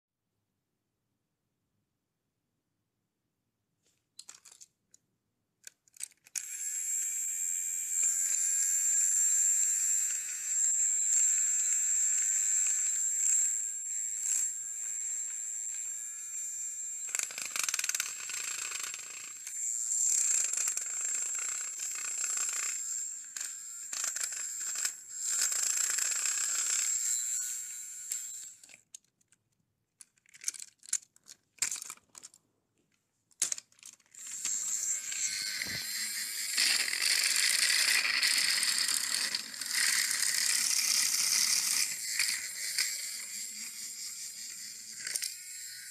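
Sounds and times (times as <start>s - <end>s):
plastic gears rattling: 4.2s - 5.0s, 5.6s - 6.6s, 17.1s - 22.8s, 28.1s - 32.4s, 33.3s - 45.6s
toy train motor whine: 6.0s - 28.8s, 33.4s - 45.9s.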